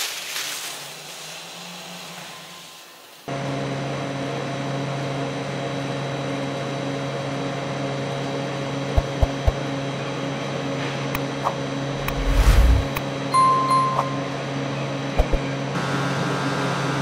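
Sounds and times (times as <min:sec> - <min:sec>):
factory machinery humming: 0:08.1 - 0:16.4.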